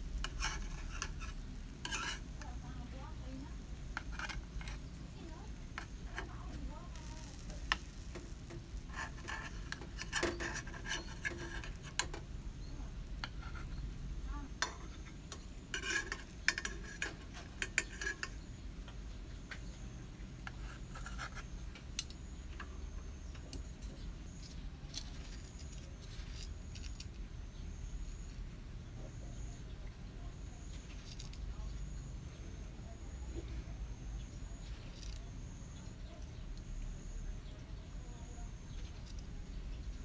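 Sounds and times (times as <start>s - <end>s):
utensils scraping metal mould: 0.2s - 2.5s, 3.6s - 12.3s, 14.6s - 18.4s, 20.4s - 22.2s.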